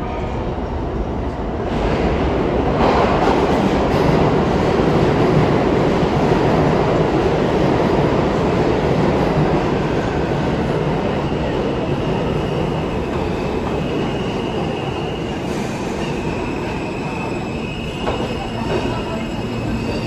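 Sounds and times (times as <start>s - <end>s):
subway train rumbling on tracks: 0.0s - 20.0s.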